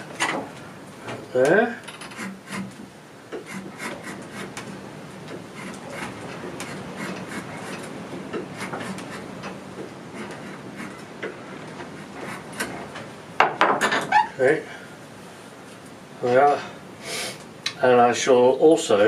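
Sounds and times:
hand tool scraping wood: 1.4 - 13.1.

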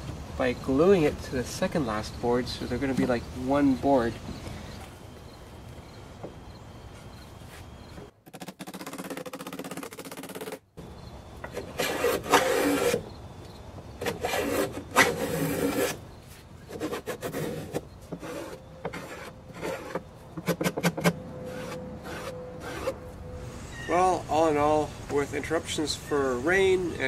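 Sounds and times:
sandpaper rasping on wood: 11.5 - 13.0, 14.0 - 16.0, 16.7 - 20.0.

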